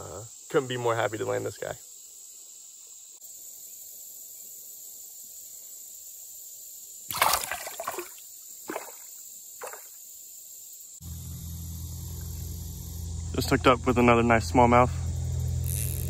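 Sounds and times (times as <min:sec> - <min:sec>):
fish splashing in water: 0:07.1 - 0:10.0.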